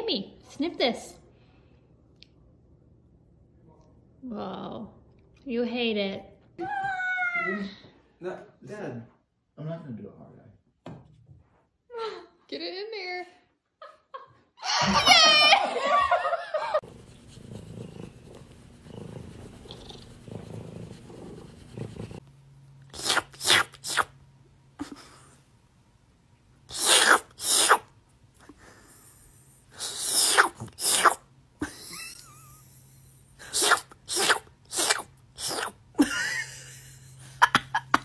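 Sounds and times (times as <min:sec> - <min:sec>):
cat purring: 0:16.9 - 0:22.2
short sharp hissing: 0:26.7 - 0:27.9.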